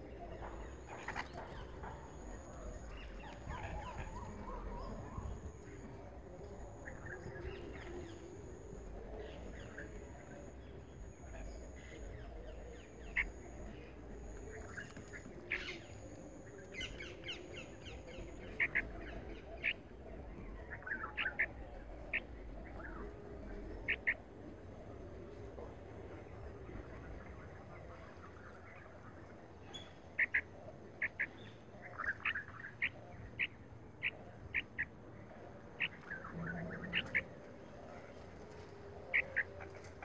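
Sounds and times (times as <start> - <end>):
birds chirping: 0.0 - 40.0
sharp bird calls: 20.5 - 24.2, 29.7 - 38.2, 38.9 - 40.0.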